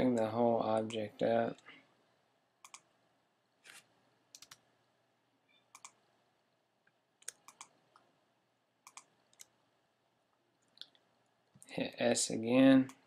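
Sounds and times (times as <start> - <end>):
mouse and keyboard clicks: 2.6 - 2.9, 5.7 - 6.0, 7.2 - 7.8, 8.8 - 9.5.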